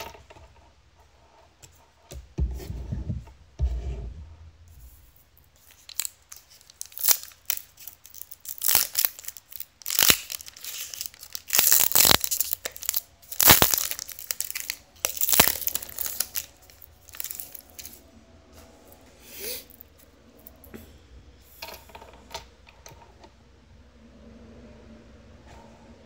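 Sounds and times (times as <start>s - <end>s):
wrappers tearing and crinkling: 5.6s - 18.0s.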